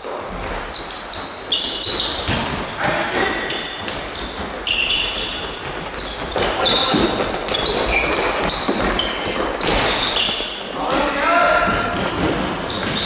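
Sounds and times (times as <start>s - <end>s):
shoes squeaking on floor: 0.0s - 13.0s.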